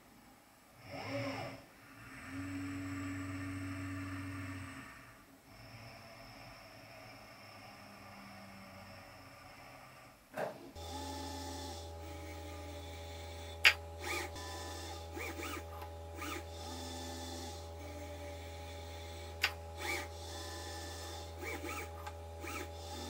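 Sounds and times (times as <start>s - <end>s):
motor hum: 0.8s - 8.9s, 10.7s - 23.0s
robot joints whirring: 13.6s - 16.4s, 19.4s - 20.1s, 21.4s - 23.0s.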